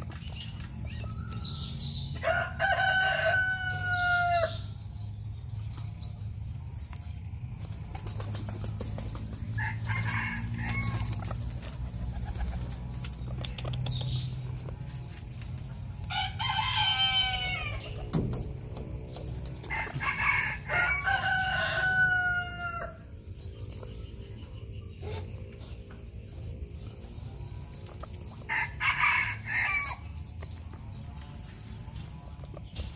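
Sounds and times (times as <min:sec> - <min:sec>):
rooster crowing: 0:02.2 - 0:04.7, 0:09.6 - 0:11.1, 0:16.1 - 0:17.9, 0:19.7 - 0:23.1, 0:28.5 - 0:30.0.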